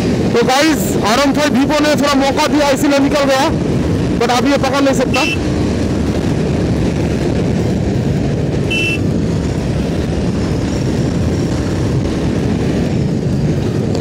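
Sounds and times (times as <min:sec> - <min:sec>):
motorcycle engine running hard: 0:00.0 - 0:14.0
wind rushing on microphone: 0:00.0 - 0:14.0.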